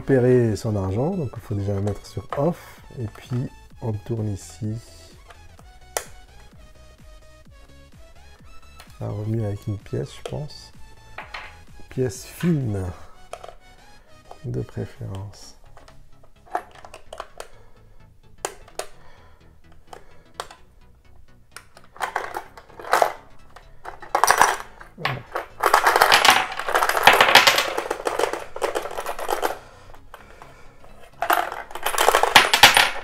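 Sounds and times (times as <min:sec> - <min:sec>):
coins clinking onto tabletop: 0:11.2 - 0:11.6, 0:22.0 - 0:23.2, 0:23.8 - 0:29.6, 0:31.1 - 0:33.0
coins rattling in plastic bank: 0:21.9 - 0:23.2, 0:23.8 - 0:29.6, 0:31.0 - 0:33.0.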